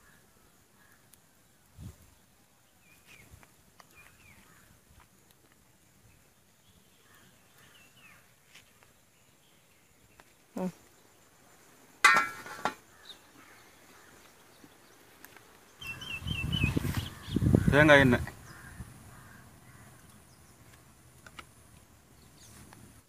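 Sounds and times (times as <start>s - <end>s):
metal clank ringing: 12.0s - 12.8s.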